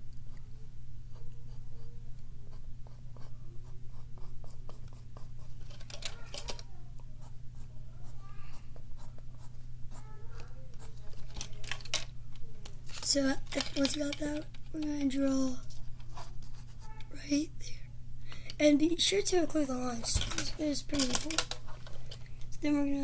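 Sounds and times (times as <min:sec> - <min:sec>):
steady low hum: 0:00.0 - 0:23.0
pencil scratching on paper: 0:01.1 - 0:05.6, 0:07.2 - 0:11.1, 0:16.2 - 0:17.0.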